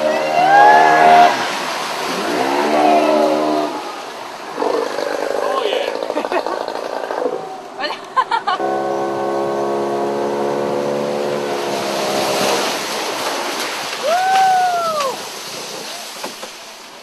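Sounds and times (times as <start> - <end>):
water noise: 0.0 - 17.0
boat motor drone: 8.5 - 13.6.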